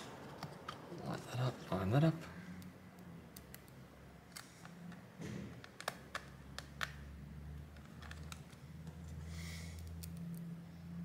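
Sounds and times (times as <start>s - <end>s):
screwdriver clicks and taps: 5.6s - 7.0s.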